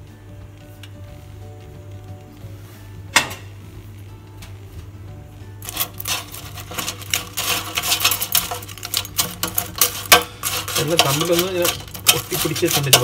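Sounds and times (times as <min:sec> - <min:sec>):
chips rattling in basket: 0:05.6 - 0:13.0.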